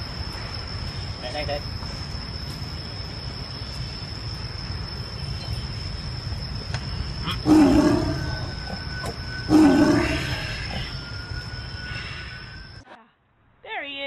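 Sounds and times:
tiger roaring: 7.2 - 11.0.

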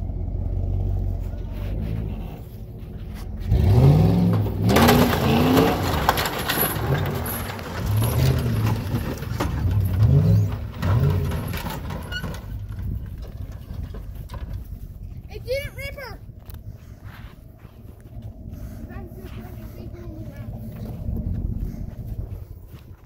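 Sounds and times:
car engine revving hard: 3.4 - 8.8.

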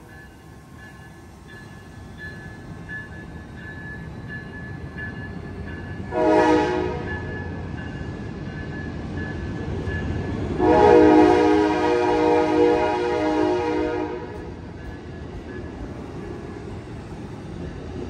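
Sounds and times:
passenger train rumbling past: 0.0 - 18.0
train horn blasts: 6.1 - 7.3, 10.6 - 14.6.

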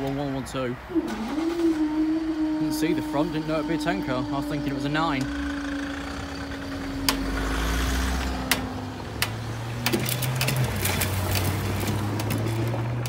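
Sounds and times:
vehicle engines running: 0.0 - 13.0
sharp clicks and knocks: 8.2 - 13.0.

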